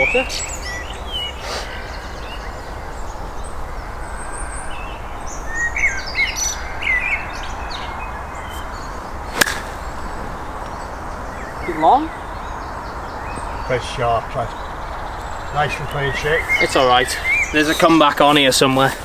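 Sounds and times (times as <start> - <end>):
birds chirping: 0.0 - 19.0
golf club striking ball: 9.3 - 10.8.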